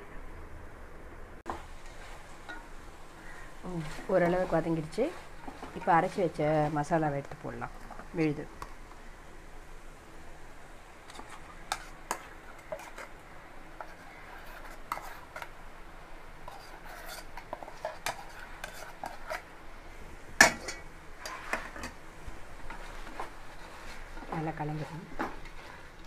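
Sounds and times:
spoon scraping metal bowl: 0:03.3 - 0:07.1, 0:11.1 - 0:13.2, 0:13.8 - 0:15.5, 0:16.4 - 0:19.5, 0:20.4 - 0:22.0.

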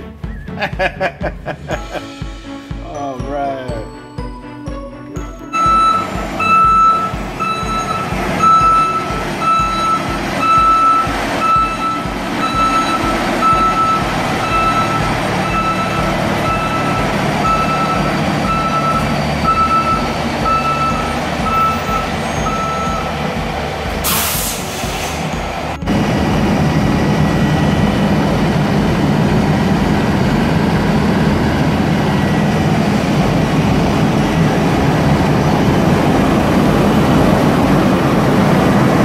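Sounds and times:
back-up alarm beeping: 0:05.4 - 0:23.3
diesel engine running: 0:05.5 - 0:39.0
air-brake hiss: 0:24.0 - 0:25.4.

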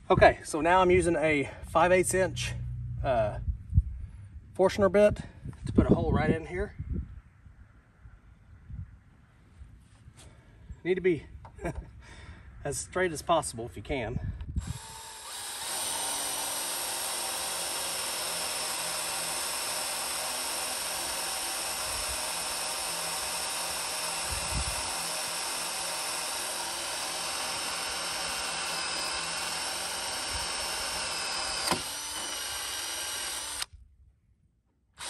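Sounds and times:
cordless drill boring through wood: 0:14.6 - 0:33.7.

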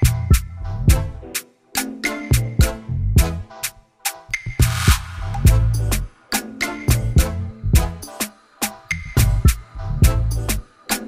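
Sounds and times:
music with drums and bass: 0:00.0 - 0:01.2, 0:01.8 - 0:03.5, 0:04.1 - 0:11.0.

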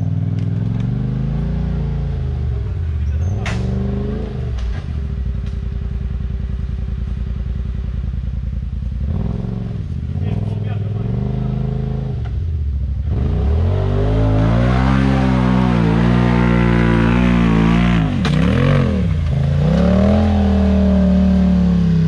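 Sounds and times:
utility vehicle engine revving: 0:00.0 - 0:07.2, 0:08.9 - 0:22.0
sharp metallic clank: 0:03.2 - 0:03.9.

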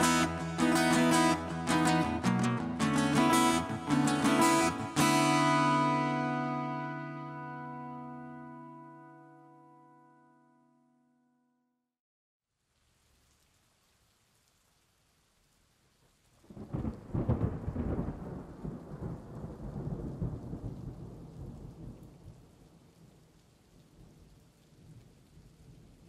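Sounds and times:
steady rain: 0:00.0 - 0:06.7, 0:12.5 - 0:26.0
thunder rumbling: 0:16.5 - 0:22.5.

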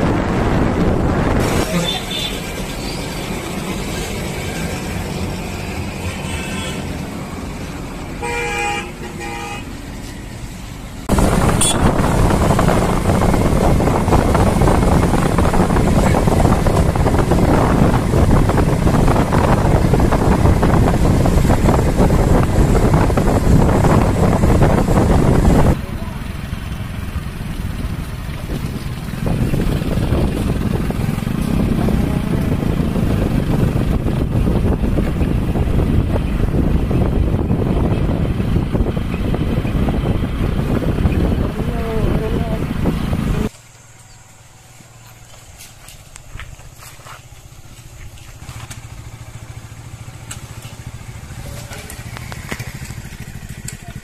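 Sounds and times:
engine and wind rush: 0:00.0 - 0:54.0
motor vehicle running: 0:00.0 - 0:54.0
horn toots: 0:01.4 - 0:02.5, 0:06.0 - 0:07.0, 0:08.2 - 0:09.7, 0:11.5 - 0:12.2.

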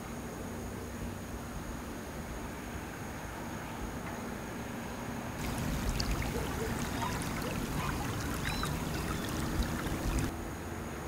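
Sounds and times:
shallow river running over rocks: 0:05.4 - 0:10.3.

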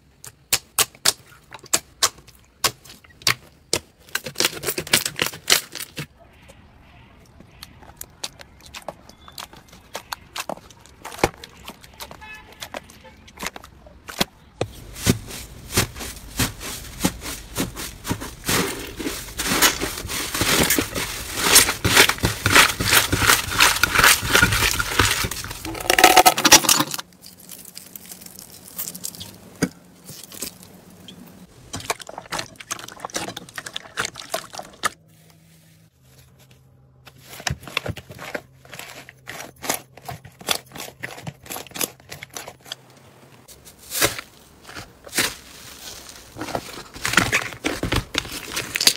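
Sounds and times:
slime squishing: 0:00.2 - 0:26.2, 0:27.1 - 0:35.0
foam-bead slime crackling: 0:07.5 - 0:26.3, 0:27.0 - 0:31.0.

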